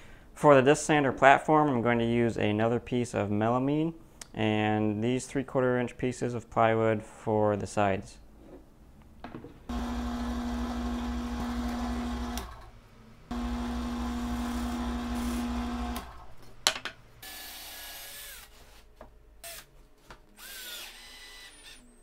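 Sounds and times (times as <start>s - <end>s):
cordless drill whirring: 9.7s - 12.6s, 13.3s - 16.4s, 17.2s - 18.6s, 19.4s - 19.7s, 20.4s - 21.9s
drill press motor drilling wood: 9.7s - 12.7s, 13.3s - 16.4s, 20.4s - 21.8s.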